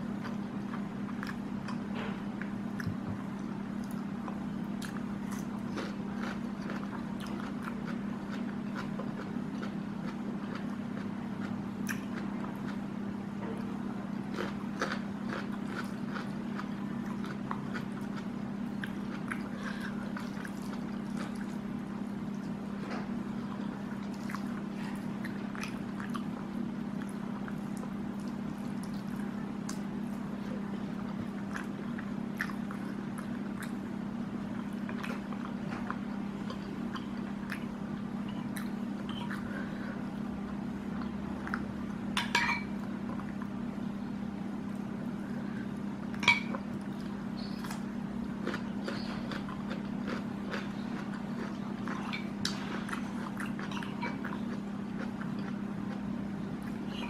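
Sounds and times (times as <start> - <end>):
steady low hum: 0.0 - 57.0
wet chewing: 3.8 - 12.8, 14.3 - 21.6, 46.8 - 56.0.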